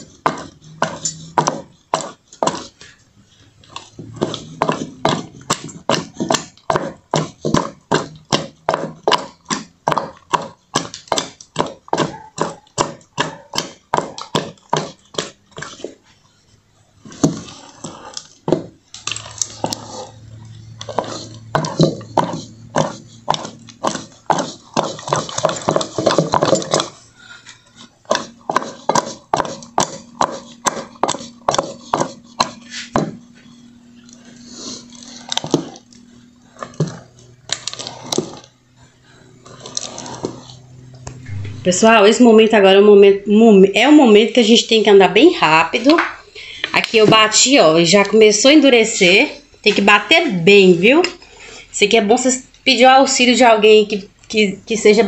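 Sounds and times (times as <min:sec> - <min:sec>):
wooden spoon knocking pot: 0:04.0 - 0:16.0, 0:18.4 - 0:18.8, 0:20.8 - 0:27.0, 0:28.0 - 0:33.4.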